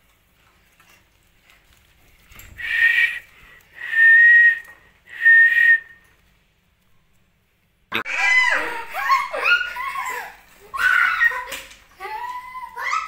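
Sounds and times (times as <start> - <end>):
short whistled notes: 2.4 - 6.0.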